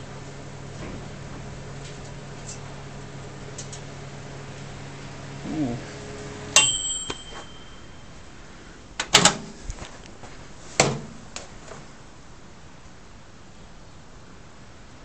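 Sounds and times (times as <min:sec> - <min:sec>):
microwave oven humming: 0:00.0 - 0:09.5
microwave timer bell ding: 0:06.5 - 0:08.3.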